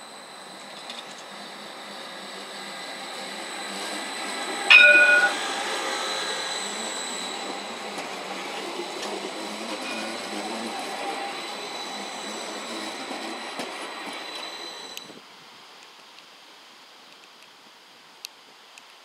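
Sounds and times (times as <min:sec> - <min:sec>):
tram rolling past: 0:00.0 - 0:15.2
loud ringing tone: 0:04.7 - 0:05.5.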